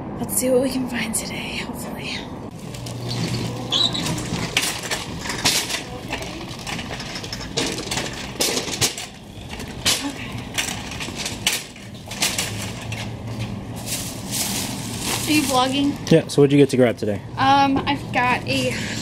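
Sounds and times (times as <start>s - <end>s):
shopping clinking and knocking: 2.5s - 15.9s.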